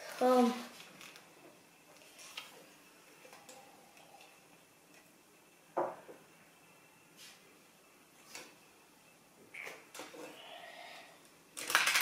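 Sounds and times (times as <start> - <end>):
plastic bricks clacking: 11.6 - 12.0.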